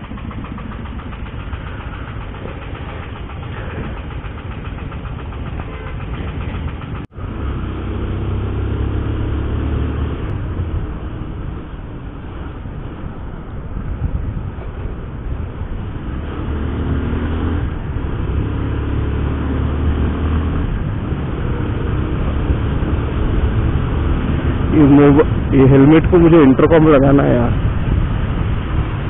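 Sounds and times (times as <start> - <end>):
motorcycle engine running: 0.0 - 13.4
city traffic: 0.0 - 29.0.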